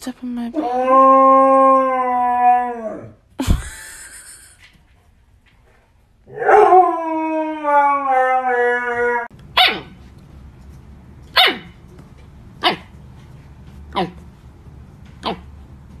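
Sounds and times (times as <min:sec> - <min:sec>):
husky howling: 0:00.6 - 0:03.2, 0:06.3 - 0:09.3
puppy yipping: 0:09.6 - 0:10.0, 0:11.3 - 0:11.7, 0:12.6 - 0:12.9.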